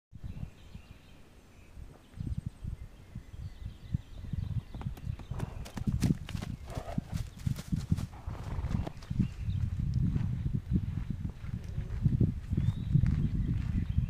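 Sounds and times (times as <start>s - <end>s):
horse hooves walking on pasture: 4.7s - 14.0s.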